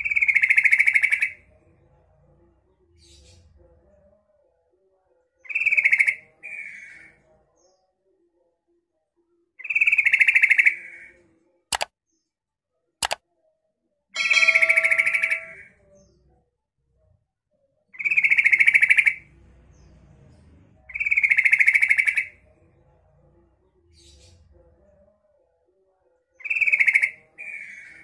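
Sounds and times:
sharp clicks: 11.7 - 11.9.

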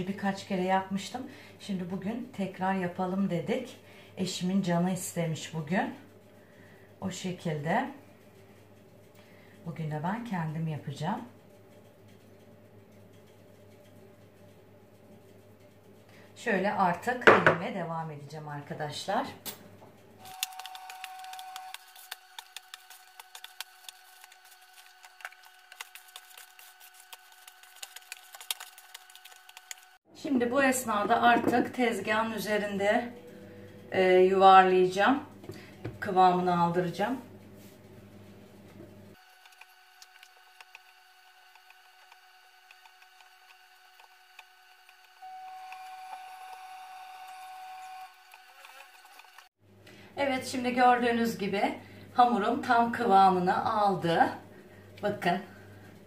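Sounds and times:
hands kneading dough: 20.4 - 30.0.

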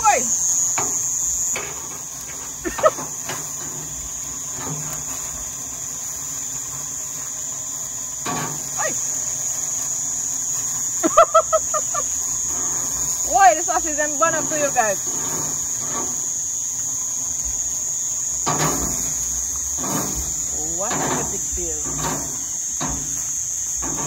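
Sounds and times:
insects chirring: 0.0 - 24.0.

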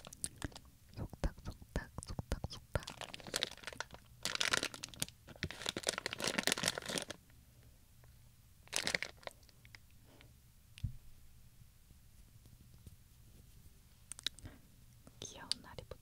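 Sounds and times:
plastic bag crinkling: 2.8 - 7.2, 8.6 - 9.6.

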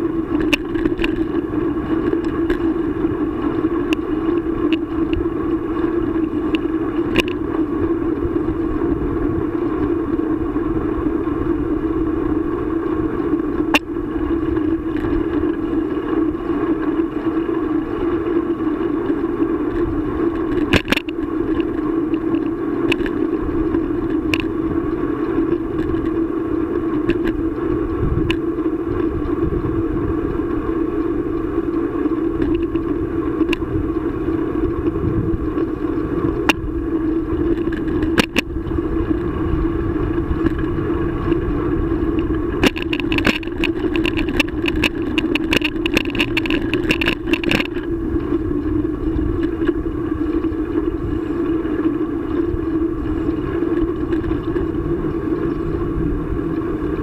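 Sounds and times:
rapid clicking and rattling: 0.0 - 10.6, 13.2 - 57.0
steady hum: 0.0 - 57.0
tyres rolling on asphalt: 0.0 - 57.0
wind rumble on microphone: 0.0 - 57.0.

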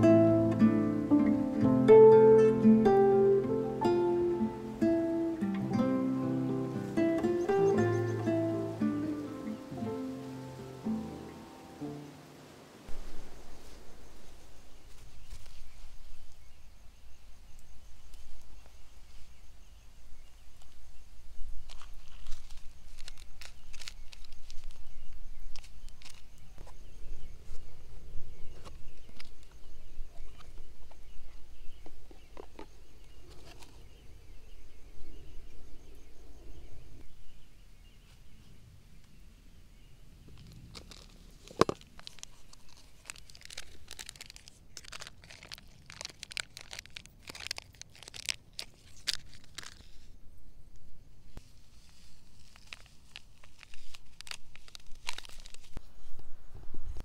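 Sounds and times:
wind rumble on microphone: 12.8 - 42.4, 55.6 - 57.0
plastic sachet crinkling and tearing: 21.7 - 24.9, 25.5 - 26.4, 40.4 - 50.1, 51.7 - 55.8.

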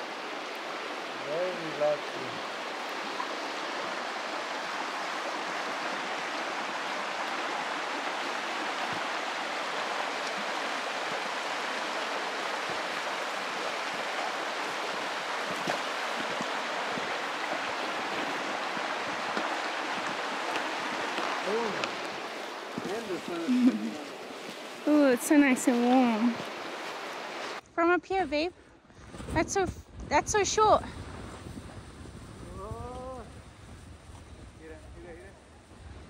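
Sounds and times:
running water in stream: 0.0 - 27.6.

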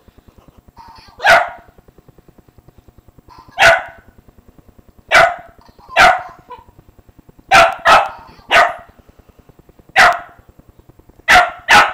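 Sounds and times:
small dog barking: 1.2 - 1.7, 3.5 - 4.1, 5.1 - 6.7, 7.5 - 8.9, 10.0 - 10.4, 11.3 - 11.9.

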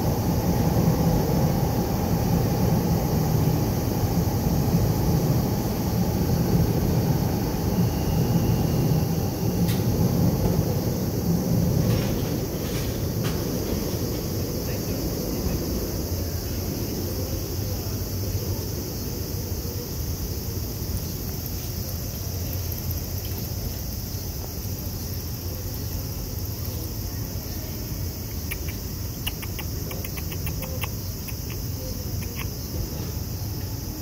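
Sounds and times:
distant traffic rumble: 0.0 - 34.0
insects chirring: 0.0 - 34.0
faint clicks: 28.4 - 32.5.

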